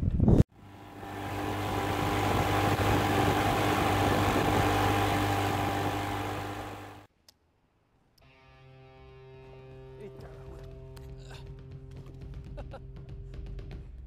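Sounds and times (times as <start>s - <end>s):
outboard motor running: 0.5s - 7.1s.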